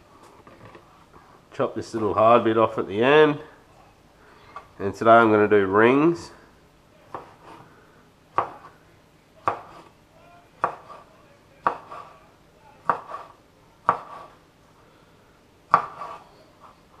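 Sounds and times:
knife chopping on cutting board: 7.1 - 7.6, 8.4 - 8.7, 9.4 - 9.9, 10.6 - 11.0, 11.6 - 12.1, 12.8 - 14.4, 15.7 - 16.2.

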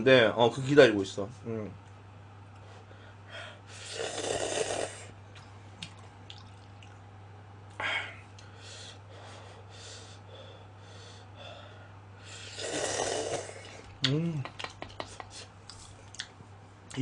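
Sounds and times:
low electrical hum: 0.0 - 17.0
soft breathing: 2.6 - 3.8, 7.8 - 12.5
person slurping noodles: 3.8 - 5.1, 12.4 - 13.8.

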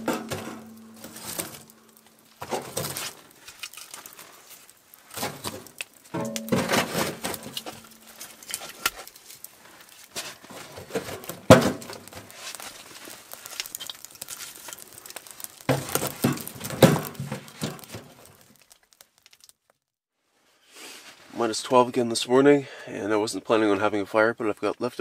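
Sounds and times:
logs knocking in stove: 0.0 - 1.8, 15.2 - 18.2
wood fire crackling and popping: 0.0 - 19.9.

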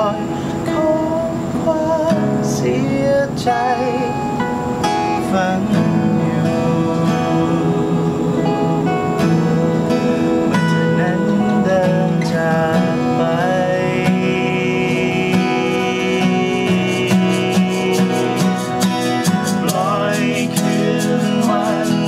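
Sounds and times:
acoustic guitars strummed and picked: 0.0 - 22.0
men singing: 0.0 - 22.0.

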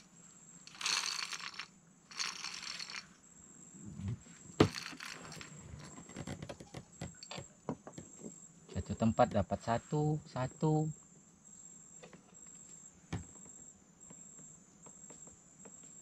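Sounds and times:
faint high insect drone: 0.0 - 16.0
crinkling: 0.6 - 3.1.

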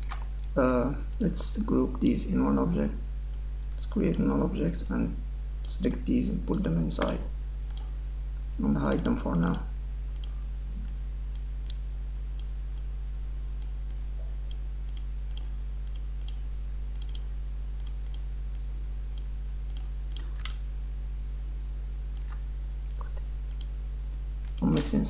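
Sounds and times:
low electrical hum: 0.0 - 25.0
computer mouse clicking: 6.5 - 7.9, 8.9 - 11.8, 13.6 - 18.6, 19.2 - 20.6, 22.2 - 22.4, 23.0 - 23.7.

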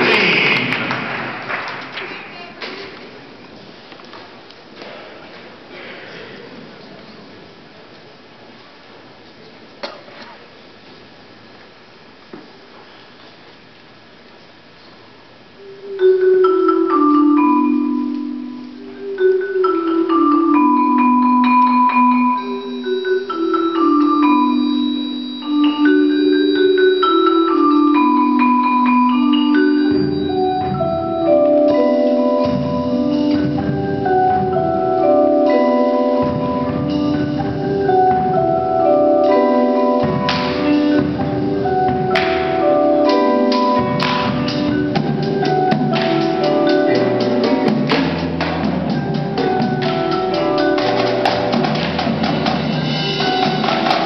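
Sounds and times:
mallet percussion music: 15.6 - 54.0.

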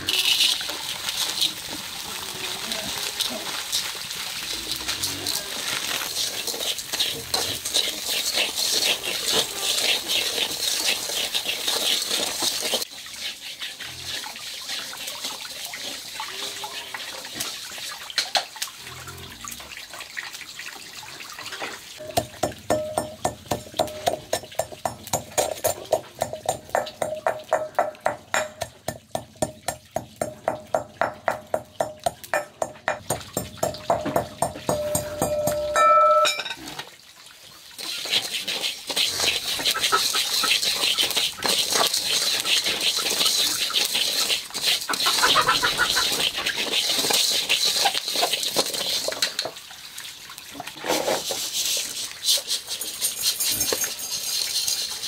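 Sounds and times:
salt scraping in a wok: 0.0 - 17.5, 21.6 - 29.2, 37.8 - 49.6, 50.6 - 55.0.

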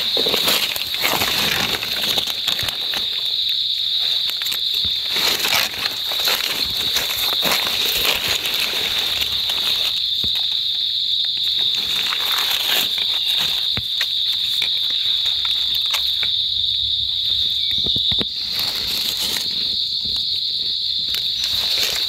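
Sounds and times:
dry leaves crackling: 0.0 - 16.5, 17.1 - 22.0
insects buzzing: 0.0 - 22.0.

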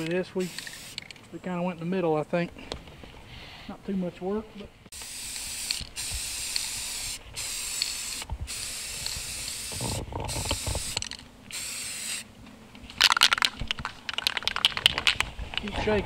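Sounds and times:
spray can hissing: 0.0 - 1.1, 4.9 - 12.3
spray can ball rattling: 0.0 - 1.2, 4.9 - 12.2, 12.9 - 15.7.

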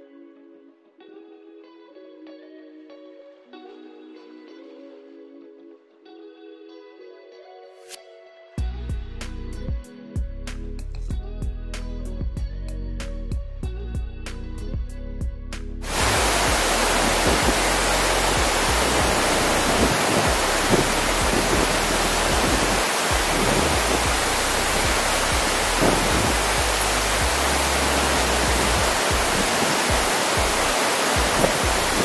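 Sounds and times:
waterfall pouring onto rocks: 15.9 - 32.0.

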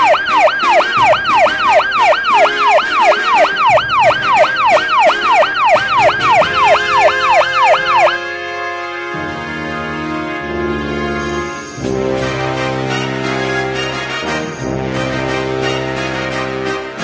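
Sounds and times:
fire alarm whoop tone: 0.0 - 8.2.

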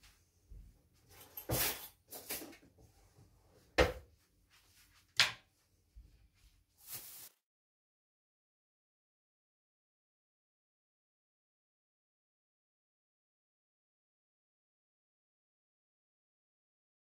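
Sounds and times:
kitchen things clattering: 1.1 - 2.8.

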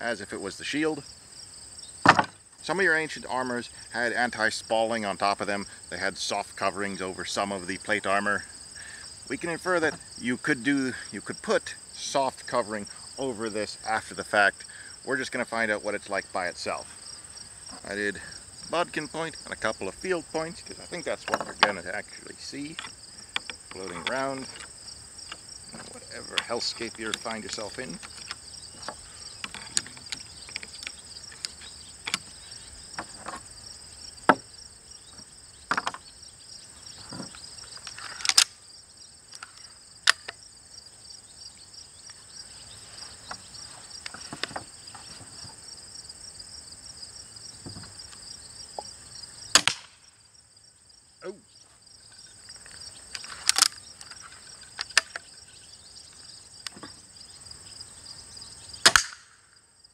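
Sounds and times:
insects trilling: 0.0 - 59.9
crossbow clicks and snaps: 38.2 - 38.6, 39.3 - 40.4, 49.6 - 50.0, 53.1 - 54.1, 58.8 - 59.4
crossbow shots cracking: 49.5 - 50.0, 58.8 - 59.4
bolts striking carbon plate: 58.8 - 59.4.

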